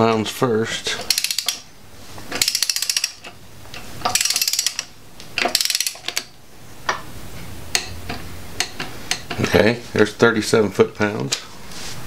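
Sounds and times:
torque wrench ratchet clicking: 0:01.0 - 0:01.7, 0:02.3 - 0:03.4, 0:04.0 - 0:06.3.

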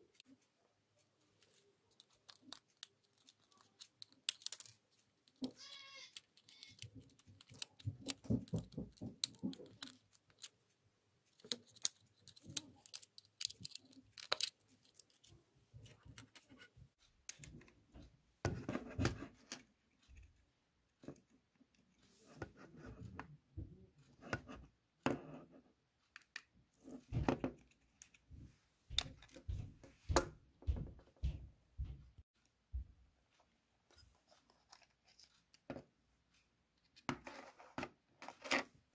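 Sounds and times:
plastic clicks and snaps: 0:01.4 - 0:10.6, 0:11.3 - 0:17.8.

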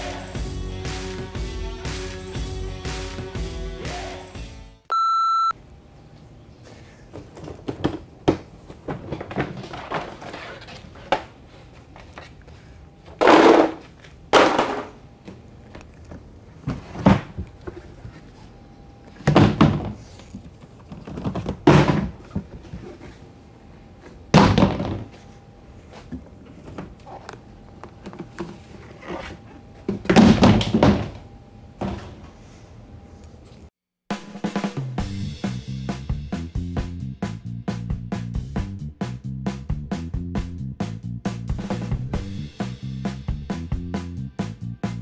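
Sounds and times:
plastic totes knocking on floor: 0:13.2 - 0:15.0, 0:21.1 - 0:22.4, 0:24.3 - 0:25.1.

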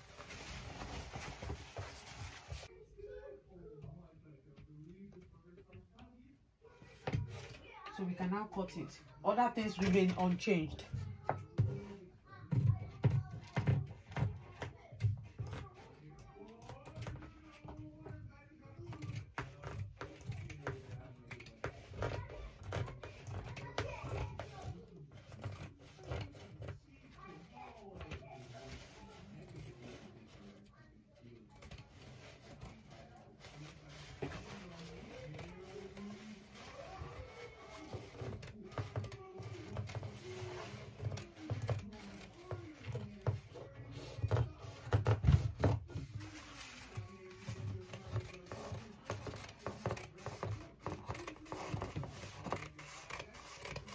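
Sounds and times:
fabric rustling: 0:00.0 - 0:02.8, 0:31.9 - 0:53.9
hands handling fabric: 0:00.0 - 0:02.8
scissors cutting fabric: 0:18.8 - 0:30.7, 0:31.4 - 0:53.9
knocks and scrapes on table: 0:31.6 - 0:53.9.

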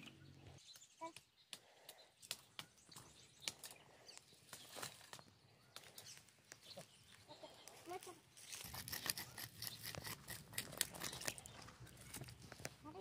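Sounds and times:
blade scraping dry soil: 0:08.3 - 0:12.8.

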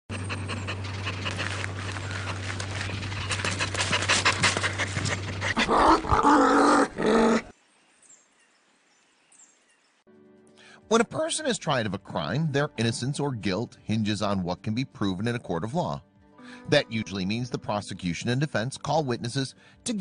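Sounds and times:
dog panting: 0:00.1 - 0:05.7
low hum: 0:00.1 - 0:07.0.

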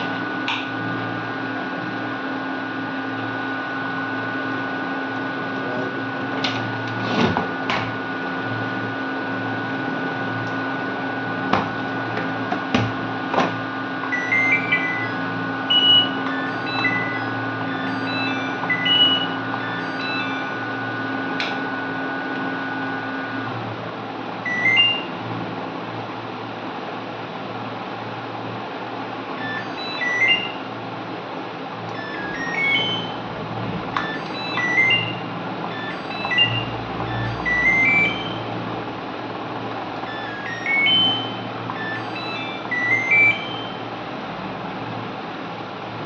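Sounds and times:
steady electrical hum: 0:00.0 - 0:46.0
short electronic beeps: 0:14.1 - 0:20.6, 0:29.4 - 0:30.7, 0:32.0 - 0:33.2, 0:34.0 - 0:38.5, 0:40.1 - 0:43.8.

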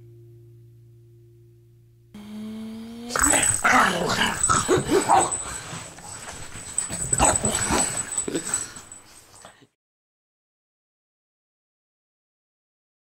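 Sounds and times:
puppy growling: 0:02.7 - 0:09.0
puppy whining: 0:02.9 - 0:09.4.

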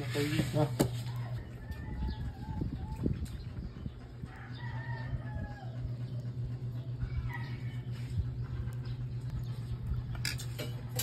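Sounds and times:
steady low hum: 0:00.0 - 0:11.0
rooster crowing: 0:01.2 - 0:02.6, 0:04.3 - 0:05.8.

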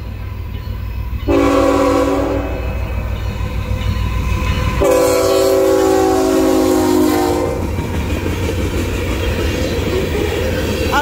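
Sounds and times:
train rolling noise: 0:00.0 - 0:11.0
locomotive air horn blast: 0:01.3 - 0:02.6, 0:04.8 - 0:07.6.

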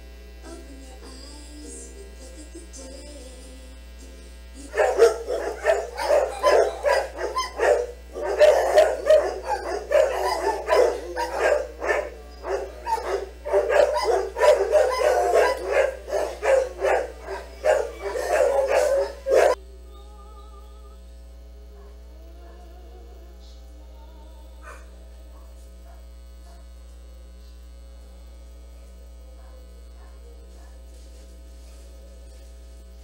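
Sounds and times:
dog barking rapidly: 0:04.7 - 0:19.6.

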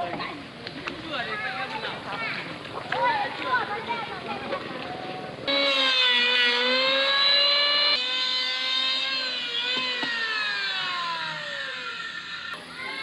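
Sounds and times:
motor whining: 0:05.0 - 0:13.0.

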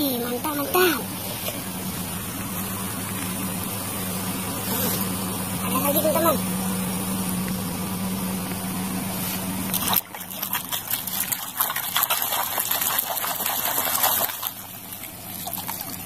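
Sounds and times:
steady low hum: 0:00.0 - 0:16.0
hand splashing water in basin: 0:09.7 - 0:16.0.

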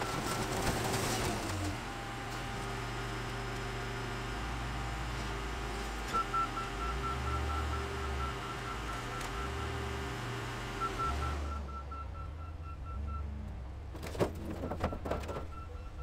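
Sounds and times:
reversing alarm beeping: 0:10.8 - 0:13.2.

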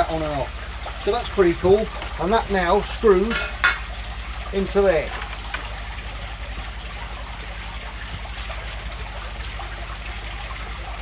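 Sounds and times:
aquarium filter water trickling: 0:00.0 - 0:11.0.

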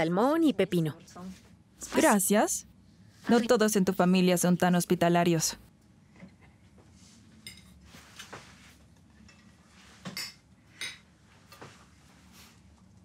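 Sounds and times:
utensils clinking on plates: 0:07.4 - 0:07.8, 0:09.2 - 0:11.1.

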